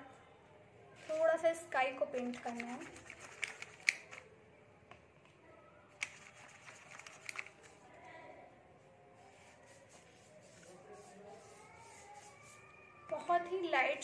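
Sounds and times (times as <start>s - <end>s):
paintbrush scrubbing in paint tin: 2.0s - 4.2s, 6.0s - 7.5s, 9.3s - 12.7s.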